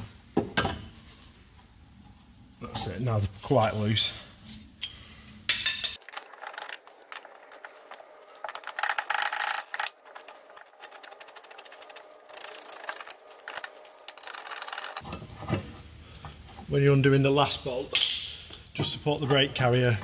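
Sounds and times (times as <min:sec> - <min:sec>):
metallic clatter: 0:05.5 - 0:15.1
ratchet clicking: 0:08.4 - 0:15.0.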